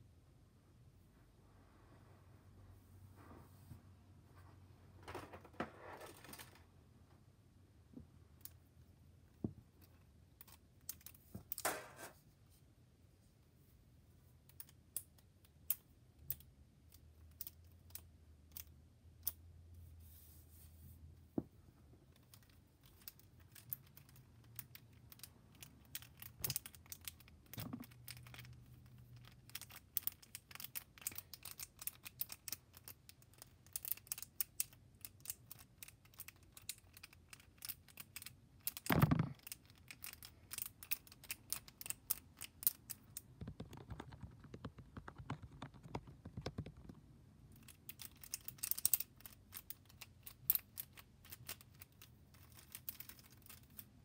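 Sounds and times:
plastic fidget toys clicking: 22.2s - 47.0s, 47.6s - 53.8s.

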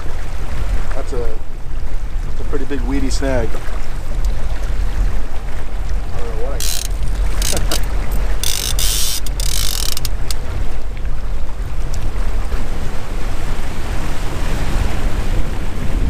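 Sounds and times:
motorboat engine rumble: 0.0s - 16.0s
water rushing past: 0.0s - 16.0s
wind buffeting microphone: 0.0s - 16.0s
fishing reel clicking: 6.6s - 10.4s.

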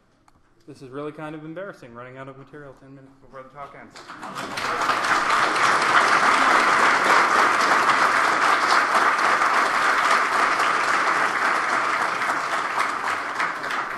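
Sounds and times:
audience applauding: 4.0s - 13.9s.

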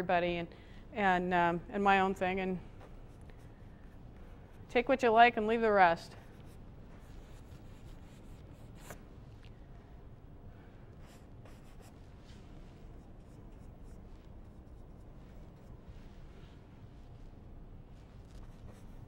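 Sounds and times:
paintbrush scratching on canvas: 18.0s - 19.0s.

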